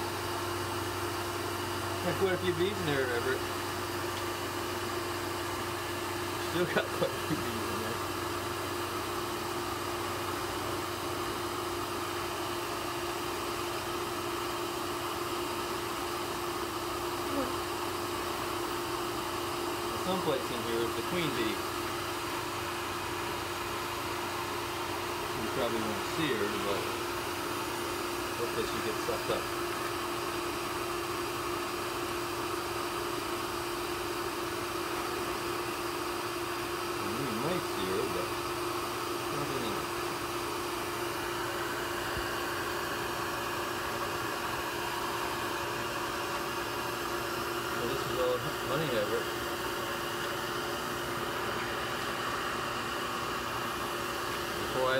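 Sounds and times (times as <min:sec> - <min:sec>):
vacuum motor humming: 0:00.0 - 0:54.9.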